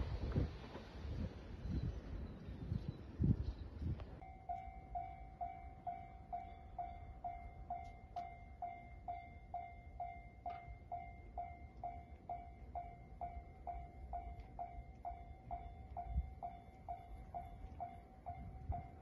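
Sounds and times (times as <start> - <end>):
level crossing alarm bell: 4.2 - 19.0.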